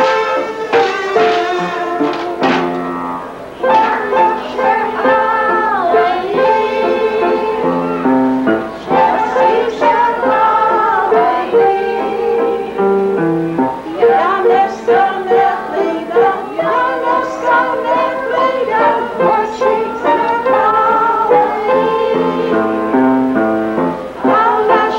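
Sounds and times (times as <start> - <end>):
kazoo-style novelty horns: 0.0 - 5.4
piano: 0.0 - 24.9.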